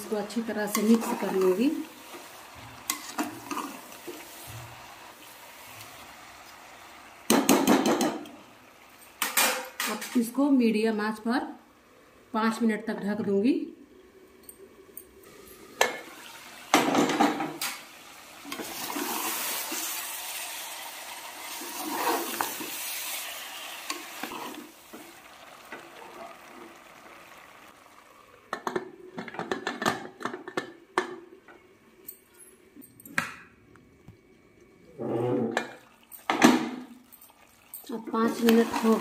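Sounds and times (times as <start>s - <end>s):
food sizzling in pressure cooker: 0.0s - 30.9s, 35.6s - 39.0s.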